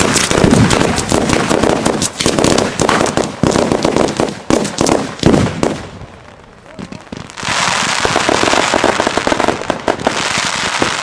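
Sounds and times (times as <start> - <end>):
firecrackers banging: 0.0 - 11.0.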